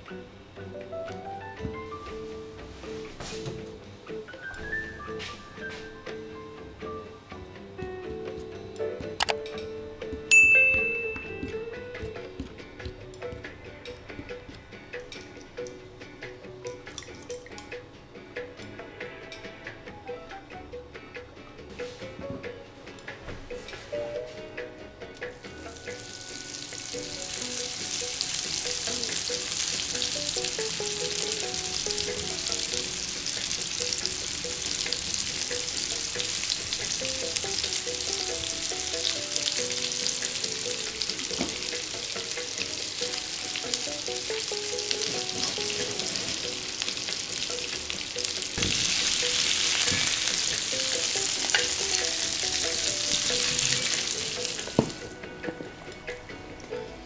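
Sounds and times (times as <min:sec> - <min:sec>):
meatballs sizzling in frying pan: 0:25.5 - 0:55.1.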